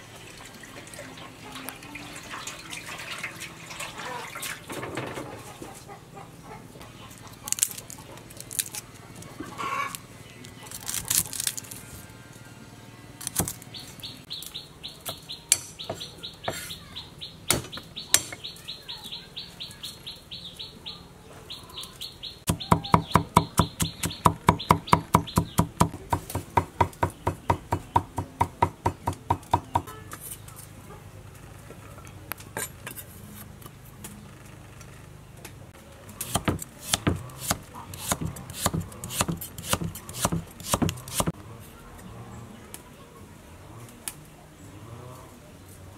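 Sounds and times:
bird chirping: 13.4s - 25.9s
knife chopping on wooden block: 36.2s - 41.3s.

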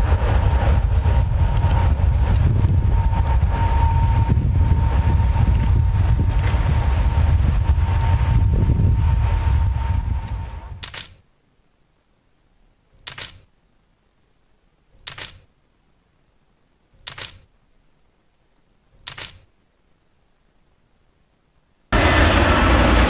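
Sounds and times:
jet airliner rumble: 0.0s - 11.0s, 21.9s - 23.0s
wind: 0.0s - 23.0s
camera shutter clicking: 10.8s - 11.2s, 13.0s - 13.5s, 15.0s - 15.5s, 17.0s - 17.5s, 19.0s - 19.5s.

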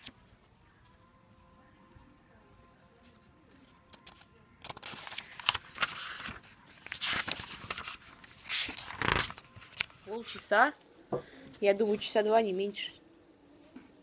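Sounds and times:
book pages rustling: 2.9s - 10.6s.

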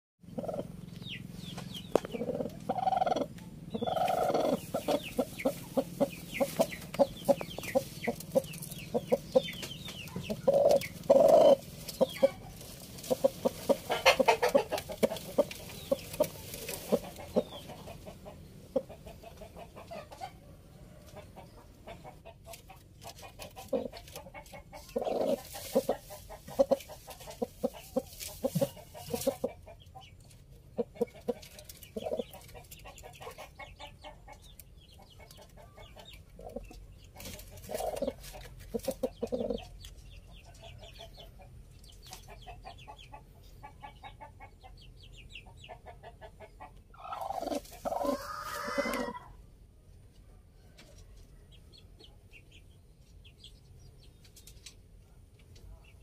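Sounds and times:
hen clucking: 0.2s - 49.5s
hen drawn-out calls: 2.2s - 6.6s, 10.3s - 12.4s, 46.9s - 49.4s.

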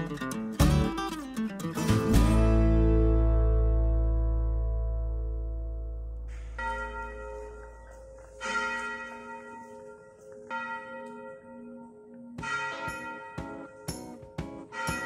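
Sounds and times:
bell-like chime tones: 6.3s - 15.0s.

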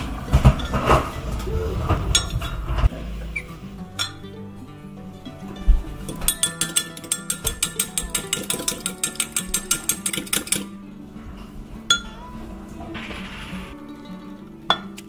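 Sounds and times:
background music: 0.0s - 15.0s
fork clinking against glass: 4.0s - 4.3s, 5.2s - 10.7s.

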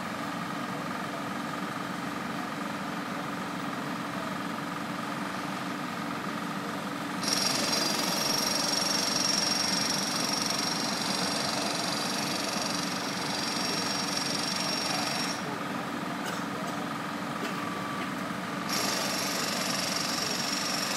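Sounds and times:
engine running steadily: 0.0s - 20.9s
high-pitched powered tool: 7.2s - 15.5s, 18.7s - 20.9s.

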